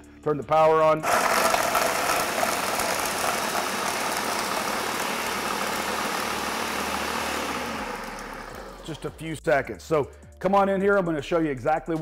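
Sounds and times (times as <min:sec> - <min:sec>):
food processor whirring: 0:01.0 - 0:09.1.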